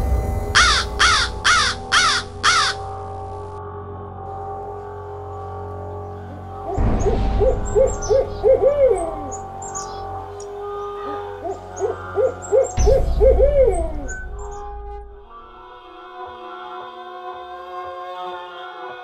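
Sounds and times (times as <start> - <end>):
low rumbling whoosh: 0.0 - 3.6, 6.8 - 10.4, 12.8 - 15.7
steady eerie drone: 0.0 - 16.4
owl hooting: 0.6 - 2.8, 6.6 - 14.8.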